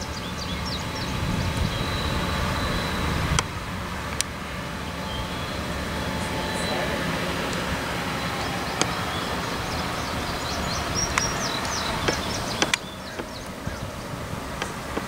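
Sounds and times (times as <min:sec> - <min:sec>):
birds chirping: 0:00.0 - 0:15.0
locomotives rumbling past: 0:00.0 - 0:15.0
sharp clicks: 0:11.1 - 0:13.6.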